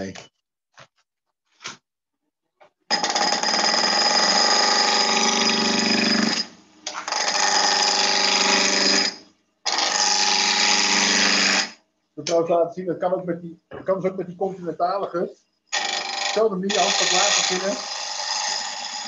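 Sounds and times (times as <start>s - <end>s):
lathe gouge cutting wood: 9.7s - 11.7s, 15.8s - 19.0s.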